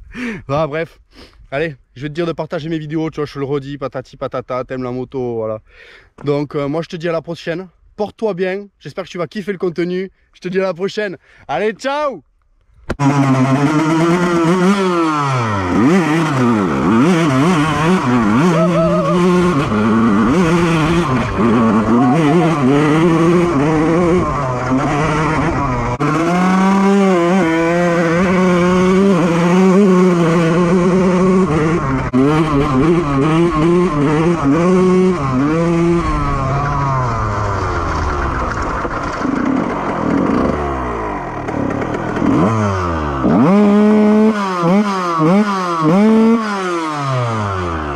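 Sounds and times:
two-stroke motorcycle engine revving: 0:13.0 - 0:47.9.

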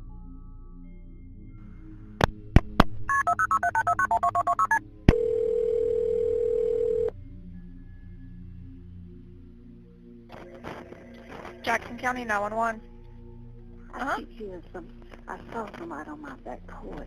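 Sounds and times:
touch-tone keypad beeps: 0:03.1 - 0:04.8
telephone ringback tone: 0:03.1 - 0:07.1.

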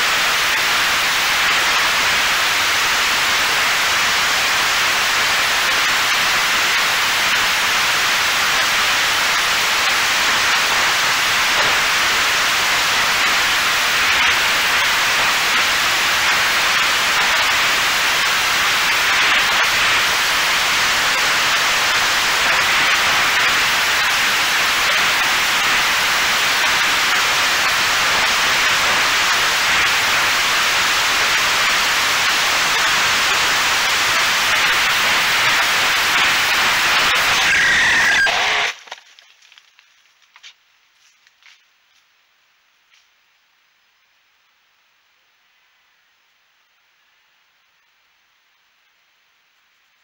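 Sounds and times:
wind hiss: 0:00.0 - 0:38.8
brief high tone: 0:37.4 - 0:38.7.

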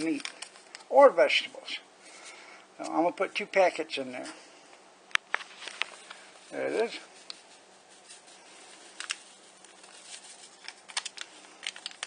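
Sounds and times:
paper packet rustling: 0:00.0 - 0:01.0, 0:05.2 - 0:12.0
faint steady hum: 0:00.0 - 0:12.0.

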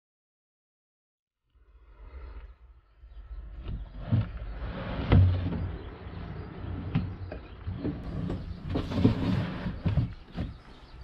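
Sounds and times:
wood knocking and scraping: 0:03.6 - 0:11.0.

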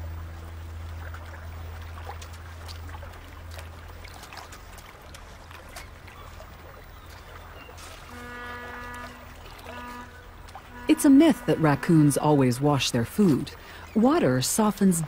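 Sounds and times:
small clicks and splashes: 0:00.0 - 0:10.8
low steady hum: 0:00.0 - 0:15.0
water trickling over pebbles: 0:00.0 - 0:15.0.

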